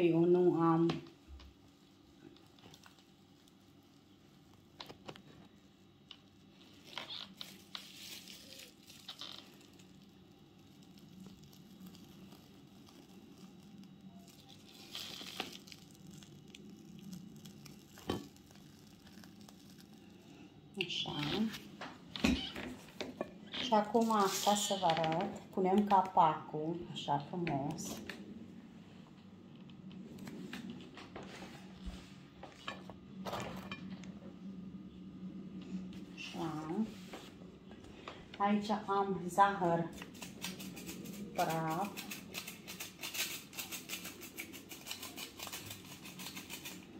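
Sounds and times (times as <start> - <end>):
faint low hum: 0.0 - 46.9
plastic piping bag crinkling: 0.5 - 21.8, 22.4 - 26.3, 39.4 - 46.9.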